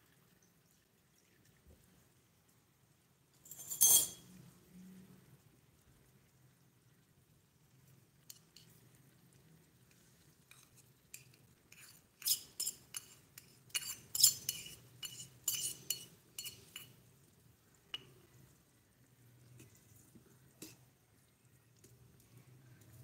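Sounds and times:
metal bowl clinking on pot: 3.4s - 4.3s.

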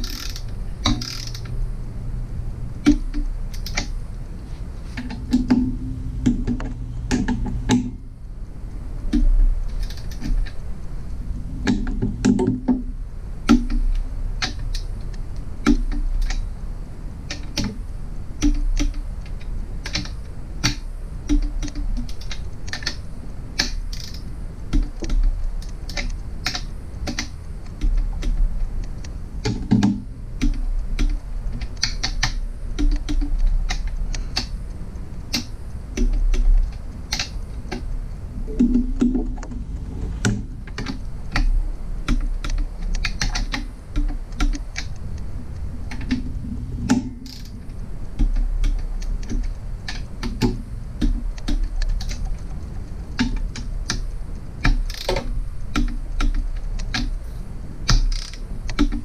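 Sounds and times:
torque wrench clicking: 0.0s - 1.6s, 2.8s - 4.0s, 9.1s - 10.4s, 23.6s - 28.3s, 47.2s - 47.6s, 53.2s - 57.1s, 57.9s - 59.0s.

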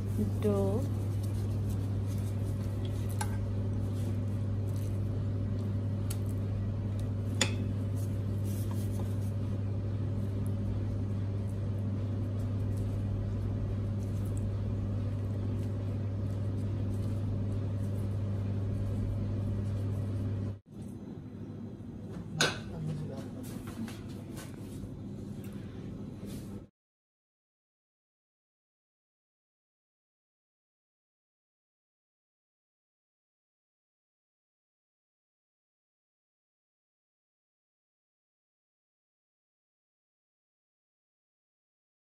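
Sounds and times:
kitchen equipment hum: 0.0s - 26.7s.

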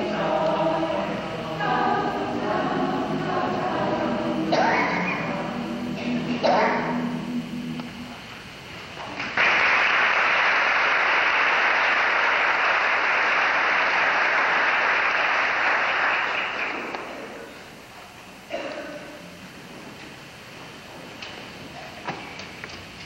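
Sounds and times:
audience applauding: 9.4s - 17.2s.

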